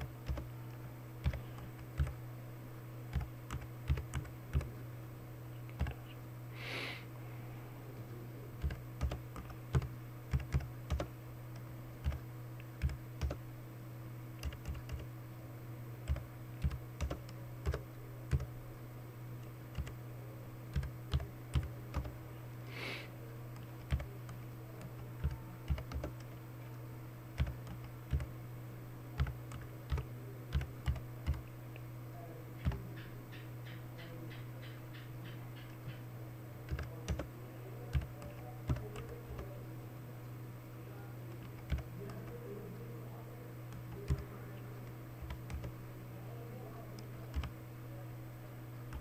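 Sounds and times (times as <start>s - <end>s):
low electrical hum: 0.0s - 49.0s
typing on computer keyboard: 0.2s - 0.5s, 1.2s - 2.2s, 3.1s - 4.7s, 8.6s - 12.2s, 12.8s - 13.4s, 14.4s - 15.1s, 16.0s - 18.5s, 19.7s - 20.0s, 20.7s - 22.2s, 23.6s - 26.3s, 27.4s - 28.3s, 29.2s - 31.5s, 36.7s - 37.3s, 37.9s - 39.5s, 41.3s - 42.4s, 43.7s - 44.3s, 45.2s - 45.7s, 47.0s - 47.5s.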